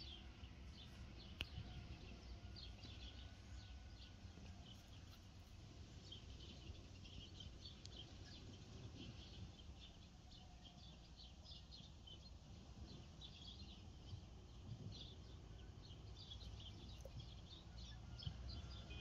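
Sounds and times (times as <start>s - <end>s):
low background rumble: 0.0s - 19.0s
small birds chirping: 0.0s - 19.0s.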